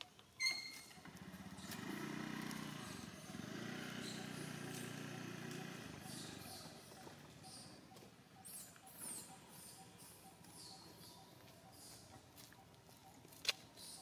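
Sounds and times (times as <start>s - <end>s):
vehicle engine running: 0.7s - 8.2s.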